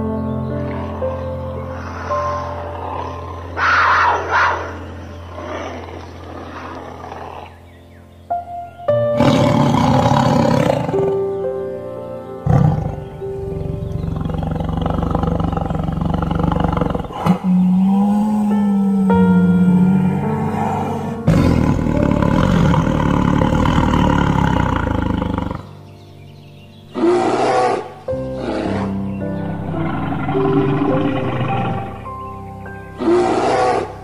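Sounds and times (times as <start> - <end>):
background music: 0.0 - 34.0
tiger roaring and growling: 0.6 - 7.7, 9.2 - 11.3, 12.4 - 25.7, 26.9 - 32.1, 33.0 - 34.0
big cat snarling: 0.7 - 7.7, 9.2 - 11.3, 12.4 - 25.8, 26.9 - 32.0, 33.0 - 34.0.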